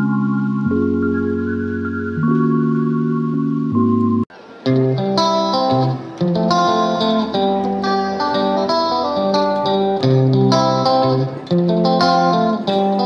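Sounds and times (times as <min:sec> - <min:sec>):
bass notes: 0:00.0 - 0:07.9
plucked-string melody: 0:00.0 - 0:13.0.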